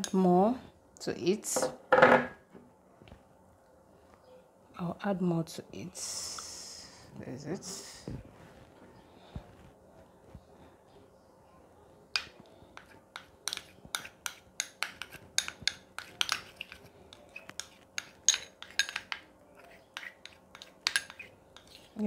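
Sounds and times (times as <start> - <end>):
metal spoon clinking against bowl: 12.2 - 21.9.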